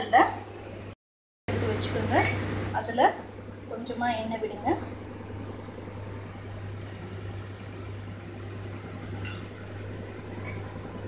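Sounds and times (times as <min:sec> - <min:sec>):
steady low hum: 0:00.0 - 0:11.0
metallic clink of kitchenware: 0:09.2 - 0:09.6.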